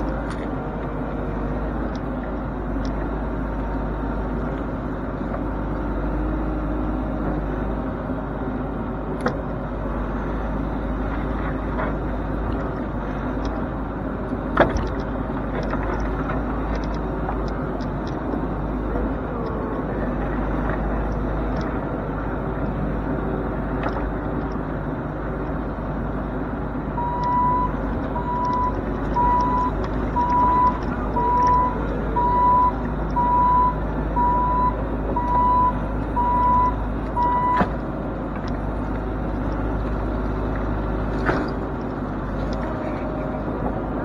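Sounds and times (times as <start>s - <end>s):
excavator diesel engine running: 0.0s - 44.0s.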